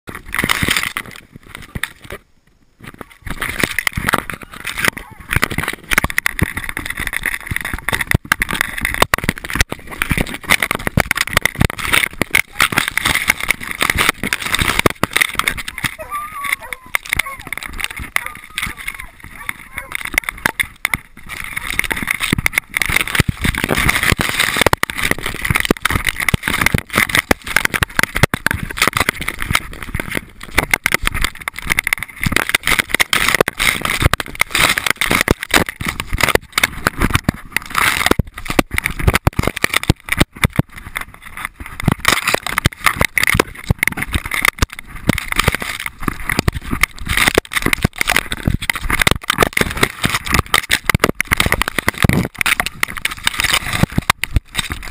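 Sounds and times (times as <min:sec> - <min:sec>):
grass scraping against camera case: 0:02.8 - 0:54.9.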